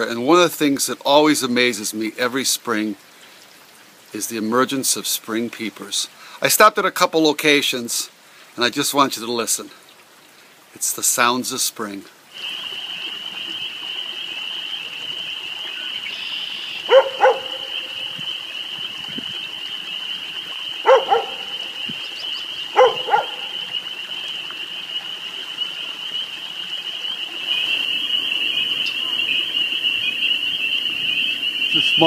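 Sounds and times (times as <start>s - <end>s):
frogs peeping chorus: 12.3s - 32.0s
animal double calls: 16.2s - 18.4s, 20.8s - 23.8s.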